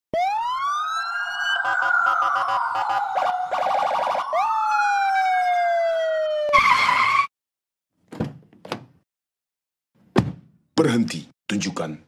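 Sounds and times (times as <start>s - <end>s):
police siren: 0.1s - 7.3s.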